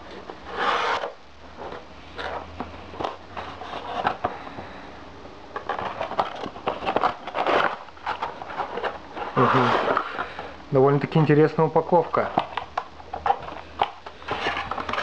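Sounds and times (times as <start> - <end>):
cardboard box rustling and clicking: 5.6 - 10.1.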